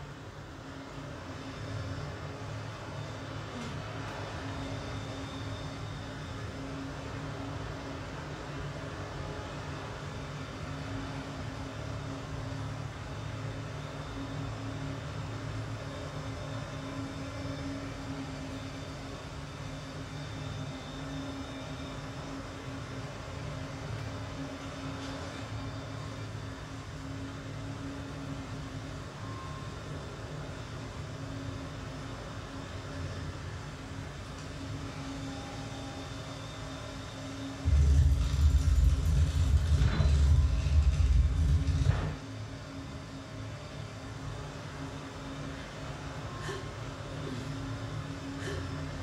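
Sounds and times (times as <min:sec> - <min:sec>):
faint steady tone: 0:00.0 - 0:38.2
low machine hum: 0:00.0 - 0:49.0
exercise machine humming: 0:37.6 - 0:42.2, 0:44.4 - 0:49.0
loud low rumble: 0:37.6 - 0:42.2.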